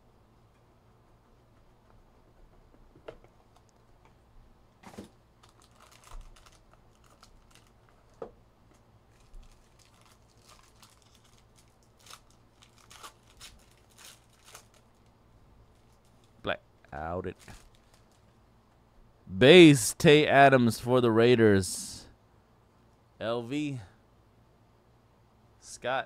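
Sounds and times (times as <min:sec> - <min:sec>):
foil pack crinkling: 0:04.8 - 0:16.4, 0:17.4 - 0:18.4.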